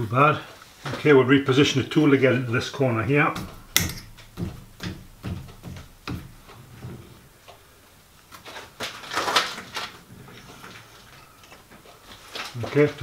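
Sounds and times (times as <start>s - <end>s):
metallic rattling and scraping: 3.4s - 7.2s.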